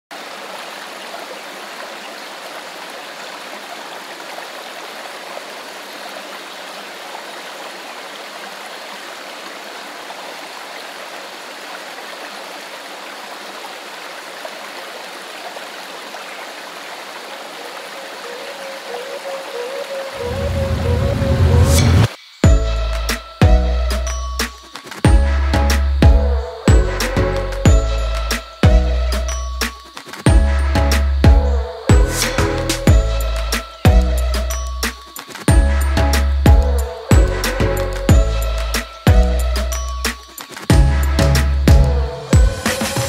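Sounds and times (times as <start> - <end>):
running water: 0.1 - 43.0
music: 20.0 - 43.0.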